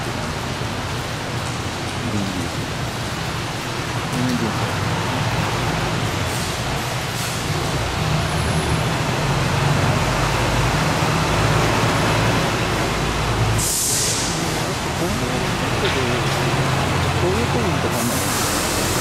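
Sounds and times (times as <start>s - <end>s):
tyre and road noise: 0.0s - 19.0s
short sharp hiss: 13.6s - 14.4s.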